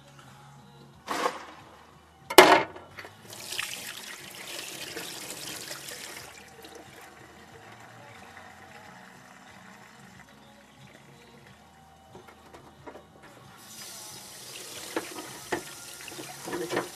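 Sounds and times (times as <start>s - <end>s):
hands rinsed under tap: 13.7s - 16.9s
tap running into steel sink: 14.8s - 16.9s.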